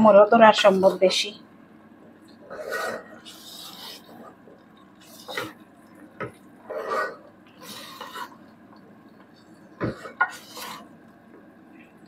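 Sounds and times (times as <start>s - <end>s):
wooden spoon scraping a steel pot: 2.5s - 4.4s, 5.0s - 5.6s, 6.6s - 8.4s, 9.8s - 10.9s.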